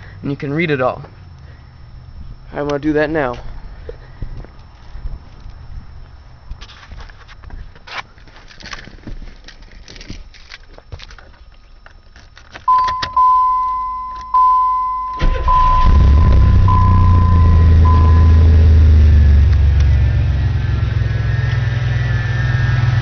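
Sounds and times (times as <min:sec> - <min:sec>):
keys rattling in ignition: 0:07.8 - 0:16.0
car warning chime: 0:12.7 - 0:18.9
car engine idling: 0:12.9 - 0:23.0.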